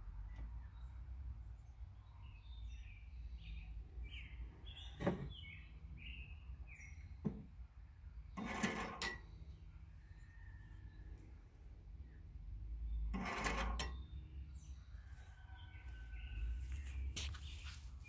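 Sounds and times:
small birds chirping: 0.2s - 8.5s, 13.9s - 18.0s.

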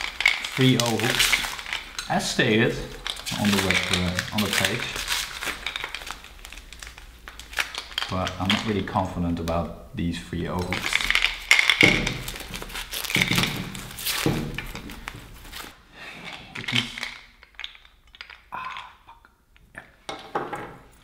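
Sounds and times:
packing paper crinkling and tearing: 0.0s - 9.6s, 10.6s - 15.8s.

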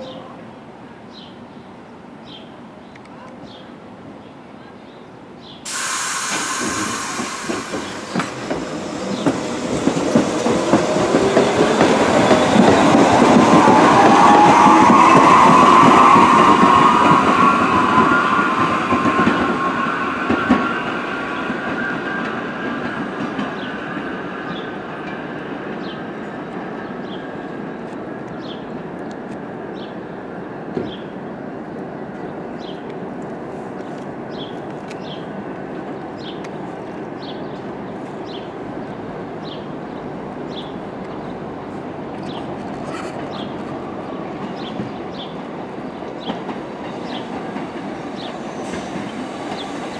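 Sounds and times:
subway train motor whine: 5.7s - 22.9s
wheels clacking over rail joints: 6.6s - 19.6s.

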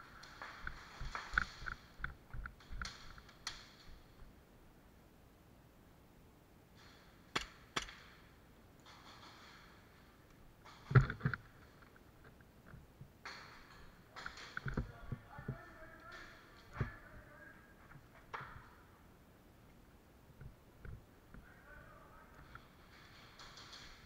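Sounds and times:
rustling: 19.9s - 24.0s.

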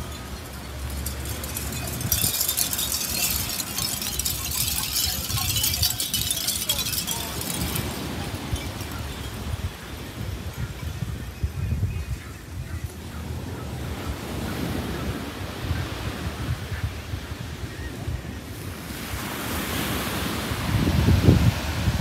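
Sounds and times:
wind chimes tinkling: 0.0s - 13.1s
wind rumble on microphone: 0.0s - 22.0s.

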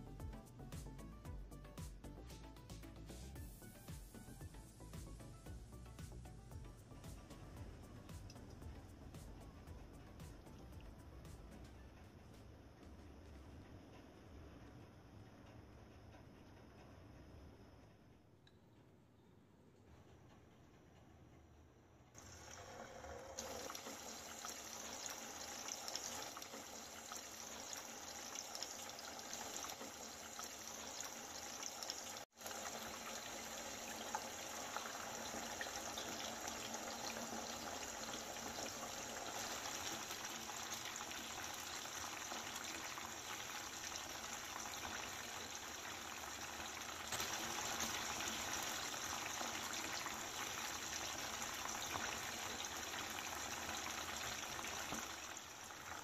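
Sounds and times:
chicken deep-frying in oil: 22.2s - 56.0s.

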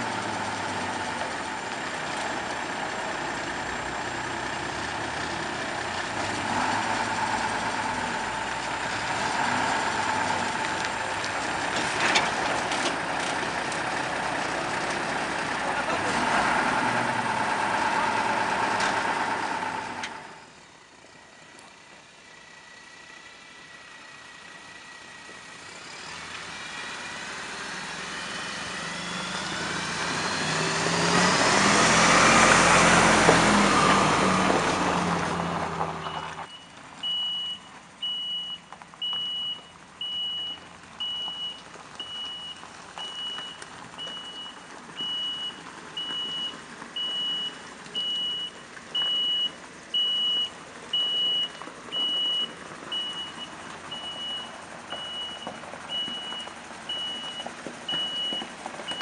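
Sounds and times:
diesel truck engine whining: 0.0s - 59.0s
reversing alarm beeping: 36.0s - 59.0s.

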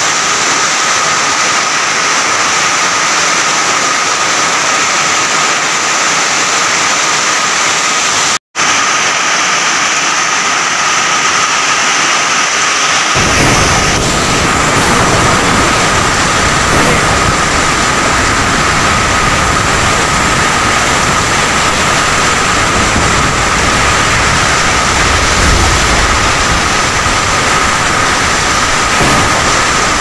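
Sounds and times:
heavy rain downpour: 0.0s - 30.0s
wind rumble on microphone: 13.2s - 30.0s.

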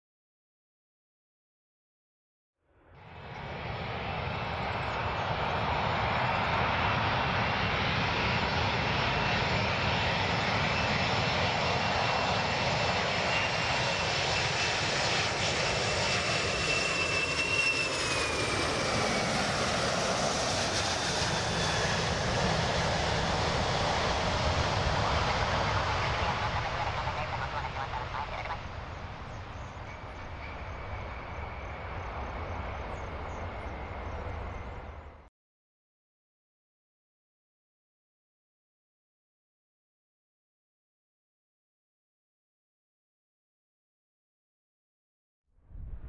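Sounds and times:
high engine whine: 2.9s - 35.2s
jet engine noise: 3.0s - 35.3s.

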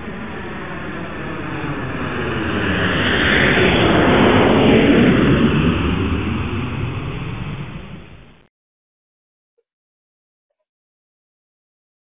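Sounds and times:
airplane flying by: 0.0s - 8.3s.

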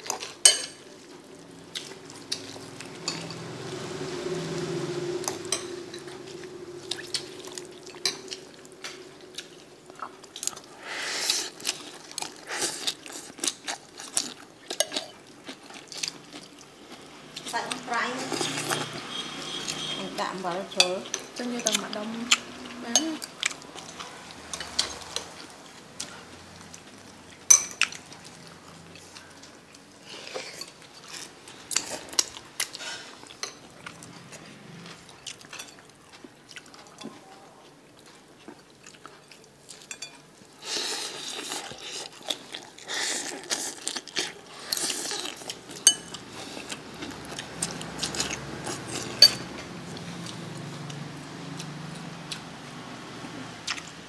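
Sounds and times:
chewing: 0.0s - 54.0s
fork scraping against bowl: 18.2s - 20.1s.

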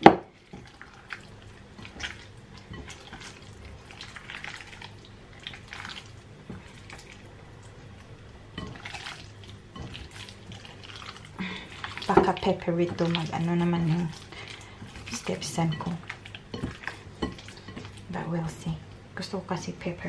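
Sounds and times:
steady low hum: 0.0s - 20.0s
wet handling of raw meat: 0.4s - 8.1s, 8.7s - 15.4s.

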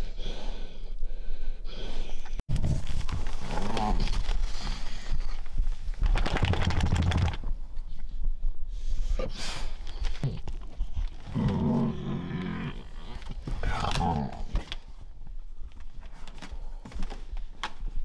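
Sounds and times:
rustling and flapping on bedding: 2.5s - 8.1s
dog groaning: 10.2s - 14.5s.

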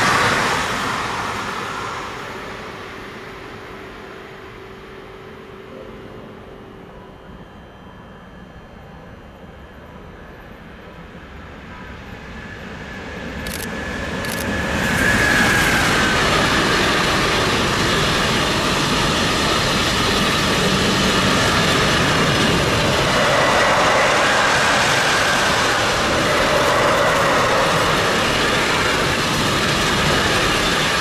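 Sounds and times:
freight train rumble and clatter: 0.0s - 31.0s
faint high tone: 5.2s - 9.1s.

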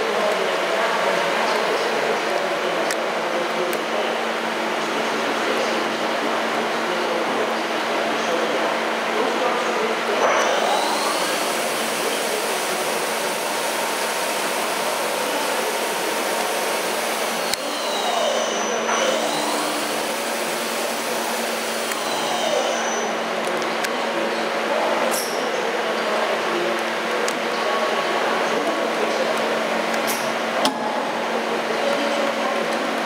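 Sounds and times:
lathe motor whine: 10.5s - 22.9s.

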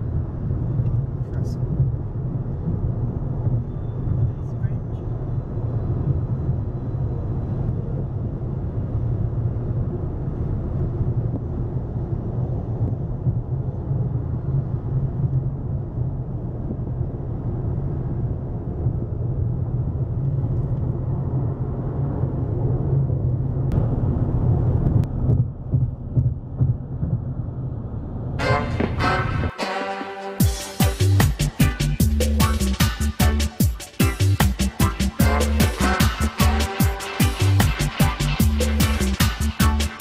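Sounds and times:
car road and engine rumble: 0.0s - 29.0s.

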